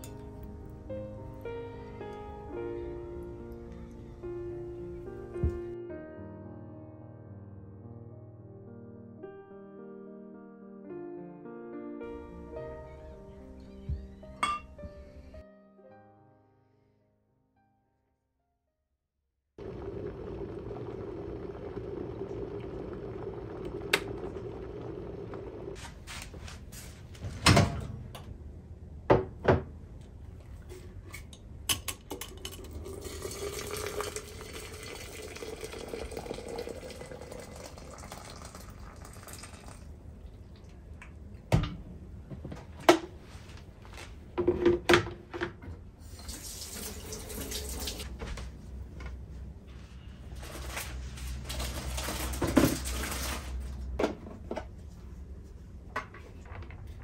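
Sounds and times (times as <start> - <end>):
glass and kitchenware clacking: 14.4 - 14.8
water pouring into pitcher: 19.6 - 25.8, 32.3 - 40.8, 46.0 - 48.0, 51.4 - 53.6
running water: 32.7 - 40.8, 46.0 - 48.0.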